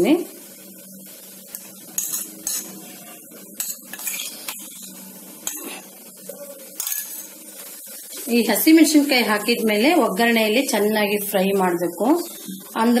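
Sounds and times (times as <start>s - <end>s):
spatula clinking on metal rims: 2.0s - 2.7s, 6.8s - 7.3s.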